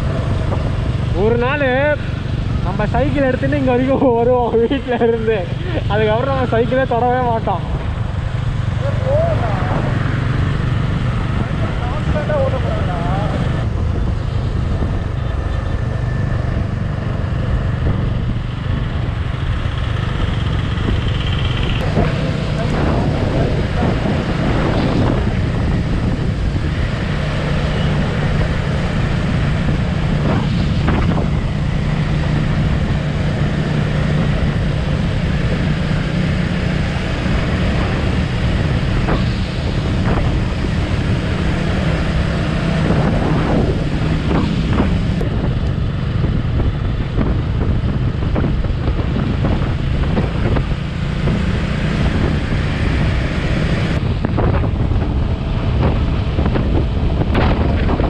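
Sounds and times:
motorcycle engine running: 0.0 - 58.0
wind rushing over microphone: 0.0 - 58.0.

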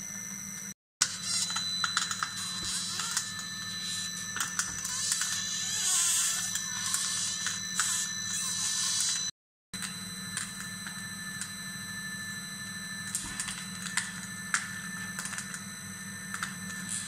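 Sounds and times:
high whining tones: 0.0 - 17.0
oil press motor hum: 0.0 - 17.0.

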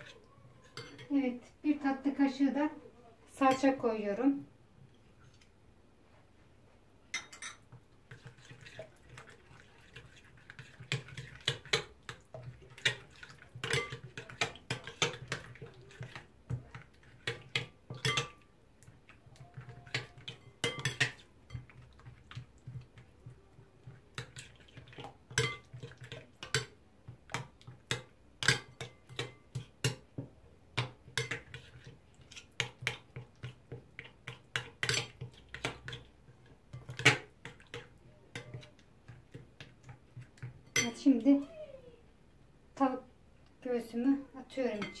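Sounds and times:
spoon scraping glass bowl: 0.0 - 1.1, 19.5 - 21.9.

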